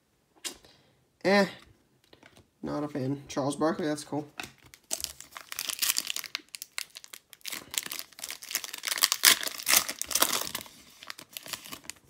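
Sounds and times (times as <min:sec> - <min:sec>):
foil wrapper crinkling: 0:04.6 - 0:12.0.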